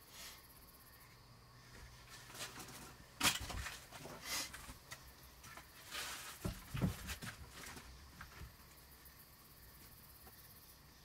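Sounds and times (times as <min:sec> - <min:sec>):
wood scraping and rustling: 0:01.7 - 0:08.8
knocks on wooden boards: 0:06.4 - 0:07.5.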